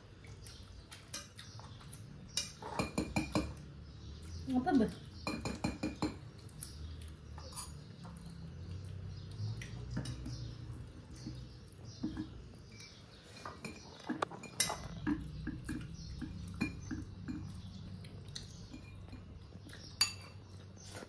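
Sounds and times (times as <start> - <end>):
chewing and mouth sounds: 6.2 - 21.0.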